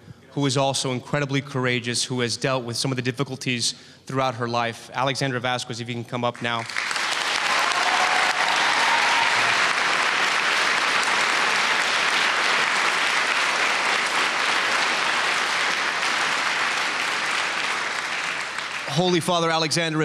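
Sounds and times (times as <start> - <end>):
audience applauding: 6.4 - 20.0.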